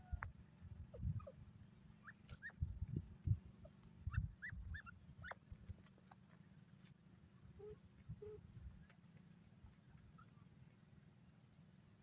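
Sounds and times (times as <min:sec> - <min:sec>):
bird squeaky calls: 0:04.1 - 0:05.4.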